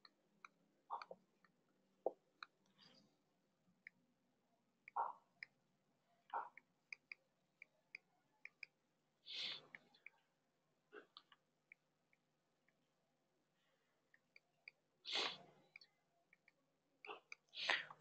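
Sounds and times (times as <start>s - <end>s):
faint clicks and ticks: 0.0s - 4.2s, 6.2s - 8.9s, 9.5s - 12.9s, 13.5s - 18.0s.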